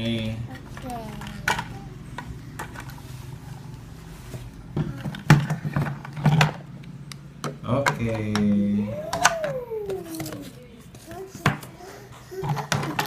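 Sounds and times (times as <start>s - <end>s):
plastic toy knocks and clicks: 7.4s - 10.4s.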